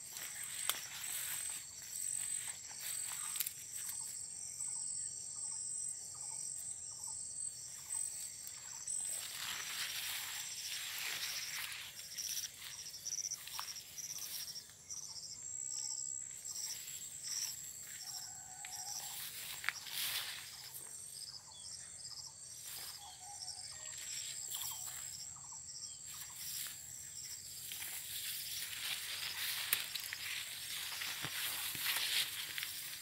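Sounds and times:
leaves brushing: 0.0s - 4.0s, 9.0s - 14.6s, 18.8s - 20.8s, 27.4s - 33.0s
insects chirping: 0.0s - 33.0s.

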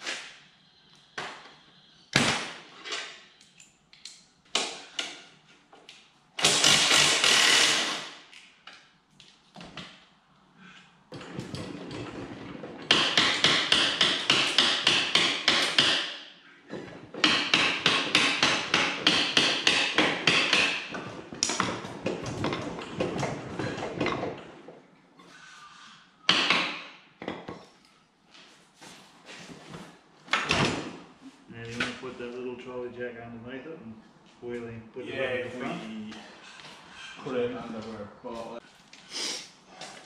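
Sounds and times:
rapid metallic hammering: 17.2s - 20.9s.

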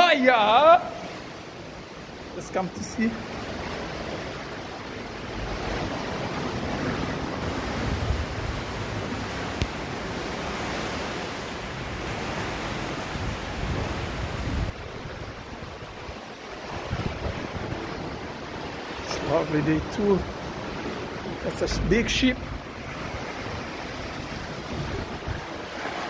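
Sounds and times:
surf washing against steel hull: 0.0s - 26.0s
wind buffeting microphone: 5.2s - 18.7s, 20.2s - 26.0s.

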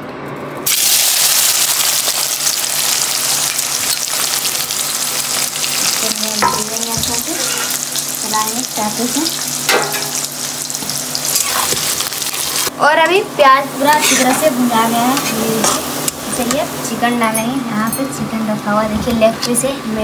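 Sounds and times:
onions sizzling in hot oil: 0.7s - 12.7s.

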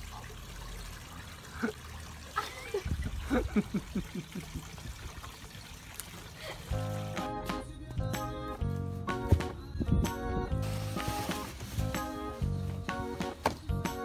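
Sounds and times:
water trickling and splashing: 0.0s - 7.2s.

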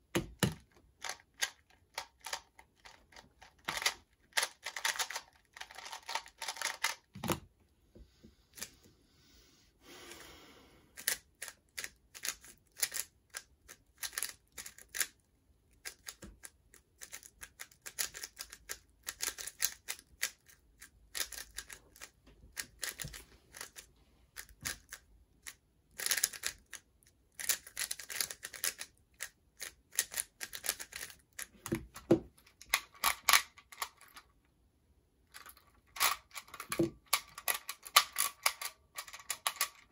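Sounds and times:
puzzle cube clicking: 0.2s - 7.4s, 11.0s - 15.2s, 15.8s - 32.0s, 35.4s - 39.9s.

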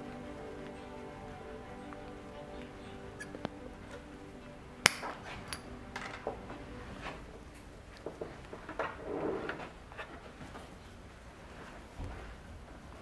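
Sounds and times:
metal hand tool snipping: 4.8s - 5.6s.

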